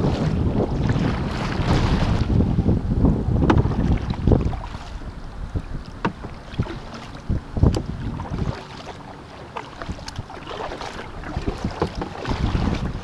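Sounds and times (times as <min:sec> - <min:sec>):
paddle splashing in water: 0:00.0 - 0:02.4, 0:03.4 - 0:13.0
water slapping hull: 0:00.0 - 0:13.0
wind buffeting microphone: 0:00.0 - 0:13.0.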